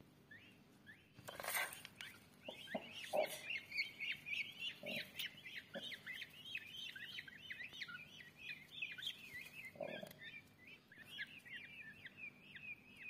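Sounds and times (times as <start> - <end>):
chicks peeping: 0.2 - 13.0.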